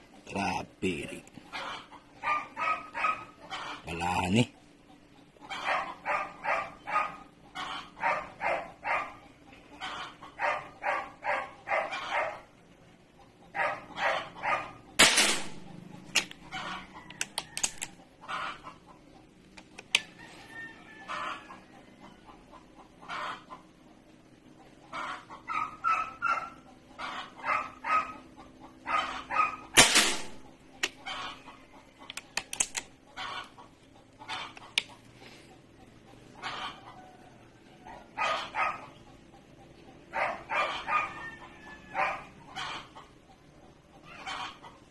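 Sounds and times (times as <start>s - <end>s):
chickens clucking: 0.0s - 44.9s
air rifle shots: 15.0s - 16.3s, 29.8s - 30.5s.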